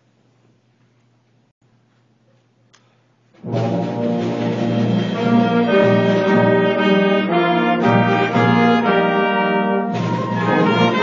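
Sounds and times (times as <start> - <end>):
brass band playing chords: 3.4 - 11.0.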